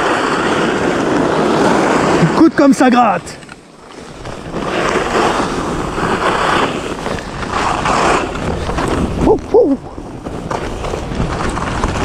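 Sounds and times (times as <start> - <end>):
skis scraping on crusty snow: 0.0 - 12.0
wind on microphone: 3.8 - 12.0
person exclaiming: 9.2 - 9.8.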